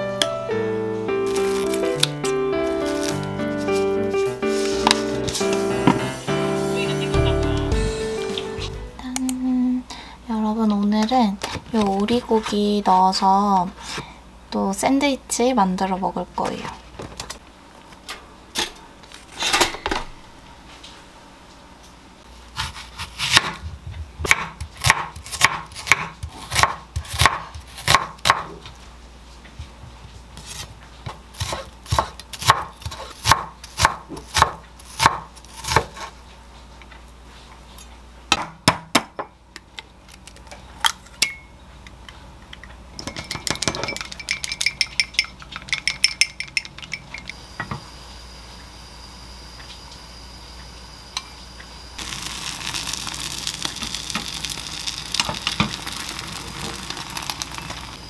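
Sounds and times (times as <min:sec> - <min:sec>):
knife dicing on wooden board: 0:31.4 - 0:36.1
ringing clinking in glass: 0:43.1 - 0:47.3.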